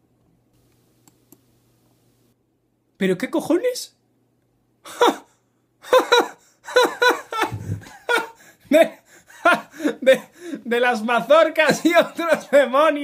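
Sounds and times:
man laughing: 0:04.8 - 0:10.9, 0:11.6 - 0:13.0.

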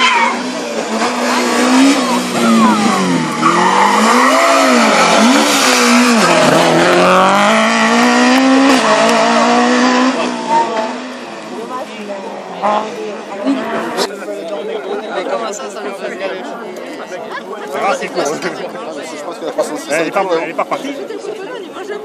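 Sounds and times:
tyre squeal: 0:00.0 - 0:00.4
rally car engines at full throttle: 0:00.0 - 0:15.0.

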